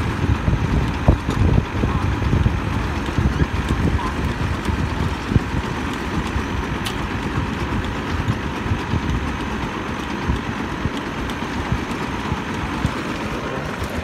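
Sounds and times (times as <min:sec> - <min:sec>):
drilling rig engine running: 0:00.0 - 0:14.0.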